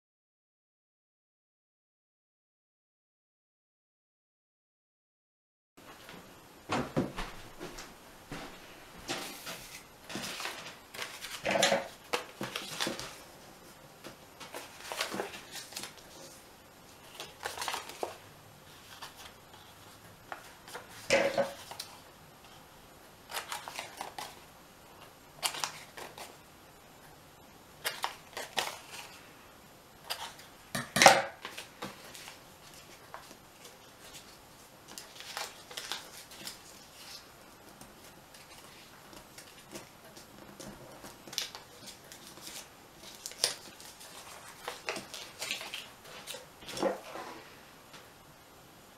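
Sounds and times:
paper being folded: 0:09.1 - 0:22.6, 0:23.3 - 0:24.4, 0:25.0 - 0:26.4, 0:27.8 - 0:29.2, 0:31.4 - 0:47.5.

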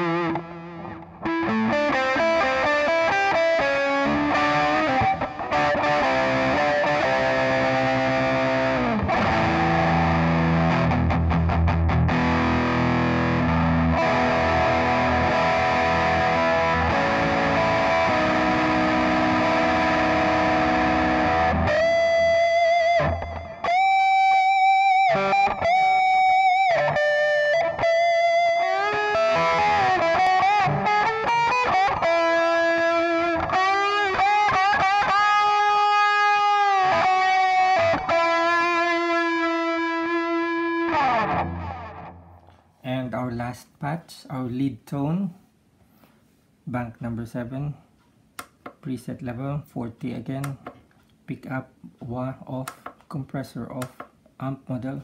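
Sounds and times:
distorted electric guitar: 0:00.0 - 0:42.7.

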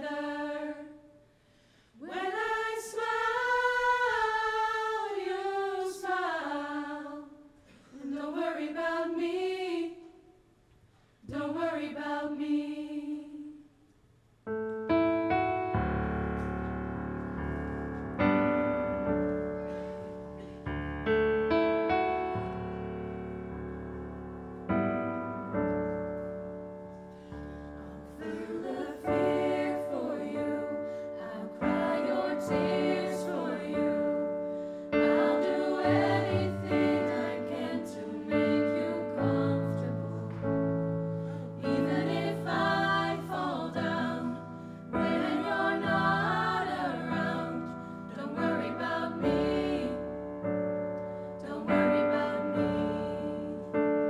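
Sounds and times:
piano chords: 0:14.5 - 0:54.0.

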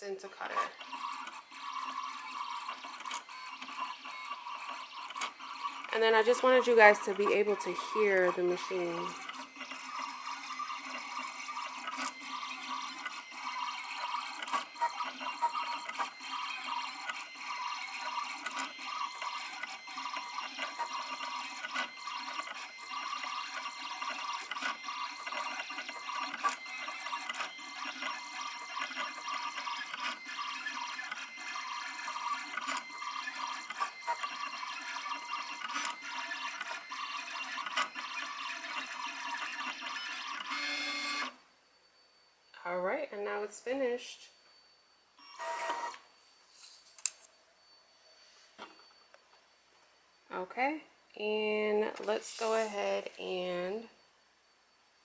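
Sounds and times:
vinyl cutter motors whirring: 0:00.3 - 0:41.4.

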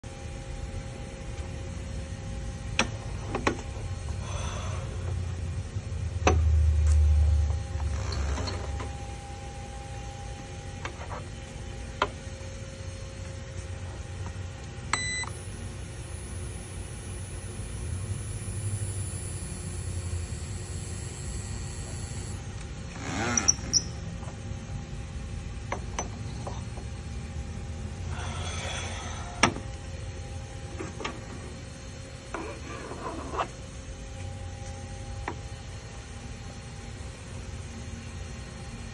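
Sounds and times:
low hum: 0:00.0 - 0:38.9
machine high-pitched whine: 0:00.0 - 0:38.9.

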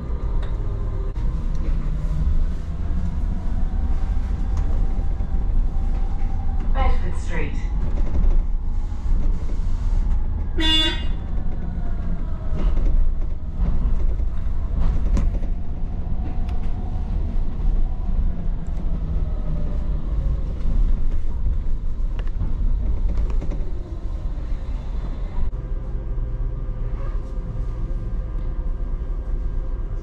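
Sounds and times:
bus rumbling through traffic: 0:00.0 - 0:30.0
vehicle horn toot: 0:10.6 - 0:11.2.

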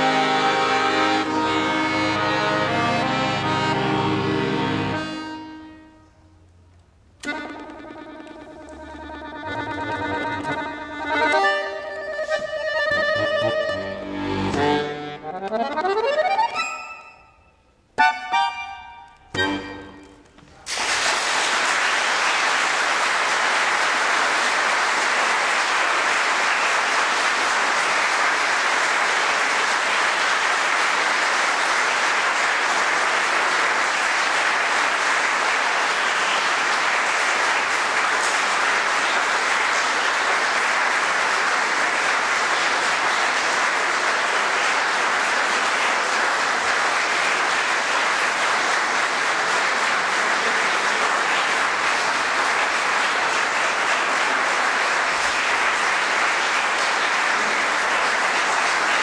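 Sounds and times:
audience applauding: 0:00.0 - 0:05.5, 0:07.2 - 0:16.8, 0:18.5 - 0:59.0.

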